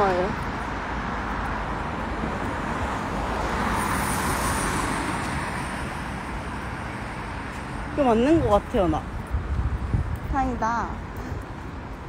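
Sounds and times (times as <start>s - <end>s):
car passing close by: 1.5s - 9.0s.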